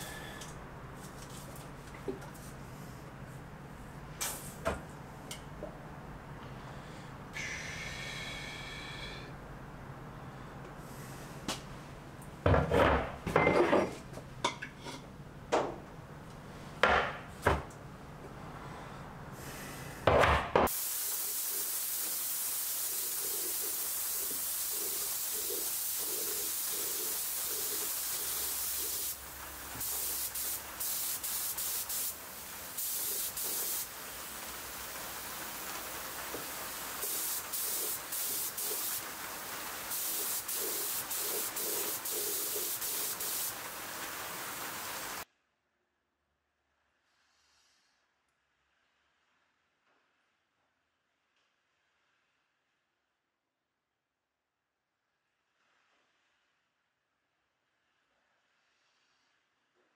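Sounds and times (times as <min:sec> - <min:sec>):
spray gun hissing: 0:20.7 - 0:45.2.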